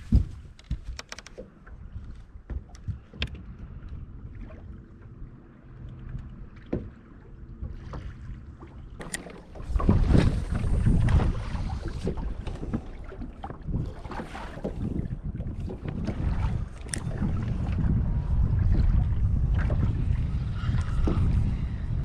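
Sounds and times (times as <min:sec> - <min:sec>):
wind buffeting microphone: 0:00.0 - 0:01.0, 0:09.4 - 0:22.0
small waves slapping boat hull: 0:00.0 - 0:21.9.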